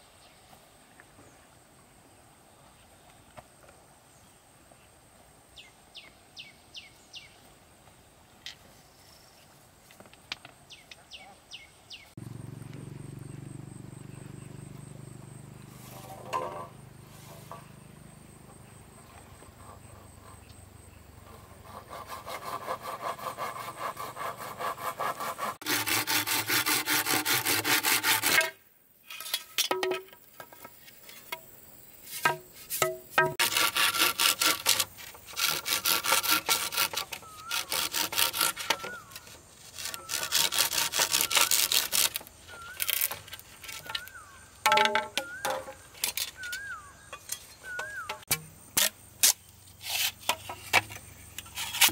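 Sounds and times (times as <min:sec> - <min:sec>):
saw cutting wood: 0:21.3 - 0:28.6, 0:33.2 - 0:44.1.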